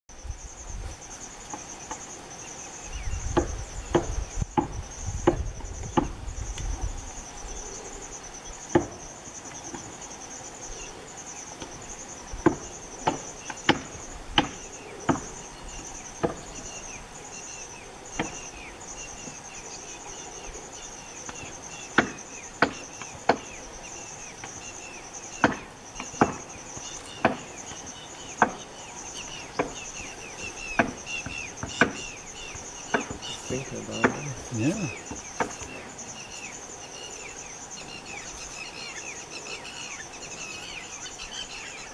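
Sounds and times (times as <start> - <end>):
insect chorus trilling: 0.1 - 41.9
sharp knocks: 33.9 - 35.5.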